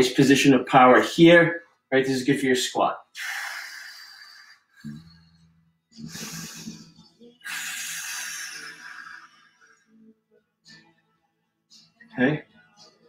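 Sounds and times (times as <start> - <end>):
faint background music: 0.0 - 13.0
man breathing forcefully: 3.2 - 5.2, 6.0 - 9.8.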